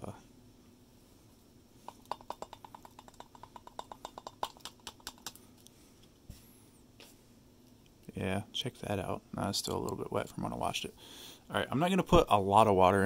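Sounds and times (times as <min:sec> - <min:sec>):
sachet tapping on glass: 0:01.8 - 0:05.4.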